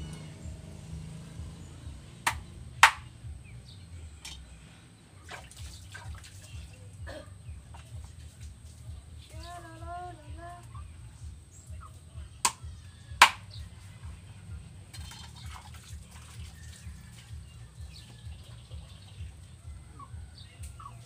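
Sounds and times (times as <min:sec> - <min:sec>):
low steady rumble: 0:00.0 - 0:05.7, 0:06.4 - 0:21.0
knife chopping on wooden board: 0:02.3 - 0:03.0.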